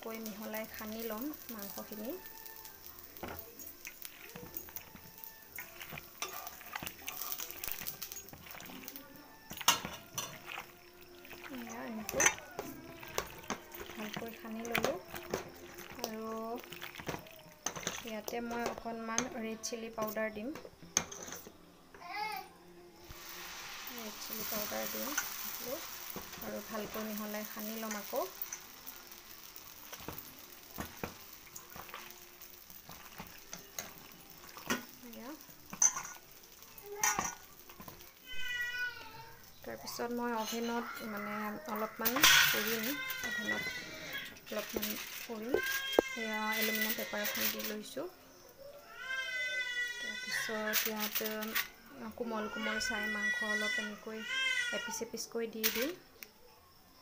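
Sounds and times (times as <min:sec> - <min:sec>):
wet squelching and rustling: 0:00.0 - 0:18.4.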